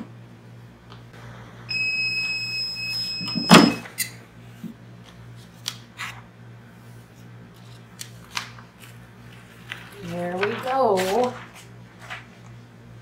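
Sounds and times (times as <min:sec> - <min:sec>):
electronic timer beep: 0:01.7 - 0:03.8.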